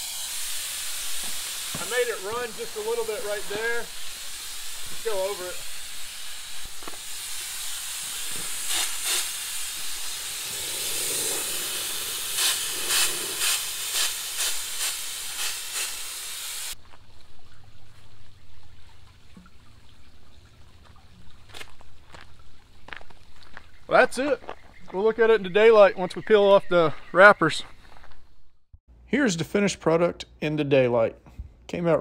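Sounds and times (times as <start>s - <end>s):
spray gun hissing: 0.0s - 16.8s.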